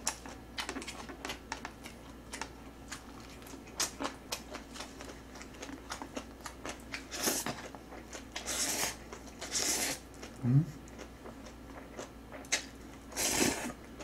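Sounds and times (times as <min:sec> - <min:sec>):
chewing and mouth clicks: 0:00.0 - 0:13.0.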